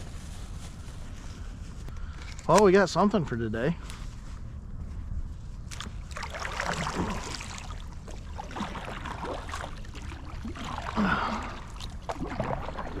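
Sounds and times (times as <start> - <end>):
water sloshing against boat hull: 5.6 - 13.0.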